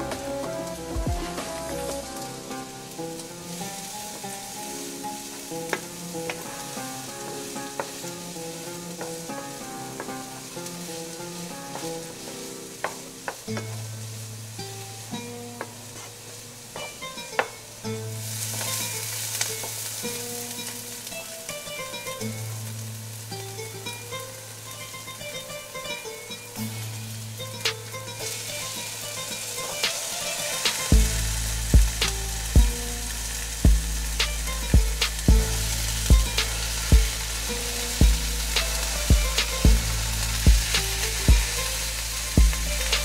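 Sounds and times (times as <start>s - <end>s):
music with plucked melody and bass: 0.0s - 43.0s
onions sizzling in oil: 0.0s - 43.0s.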